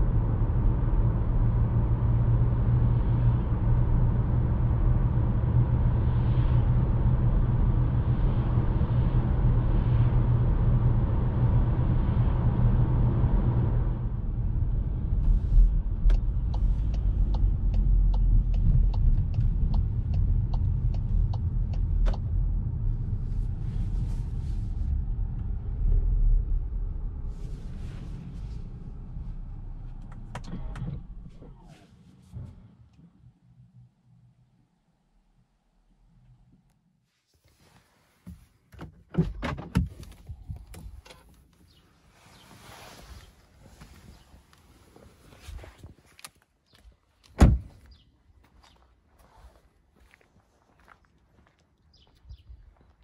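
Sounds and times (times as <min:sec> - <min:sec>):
car engine and tyre noise: 0:00.0 - 0:53.0
turn indicator ticking: 0:16.1 - 0:22.3.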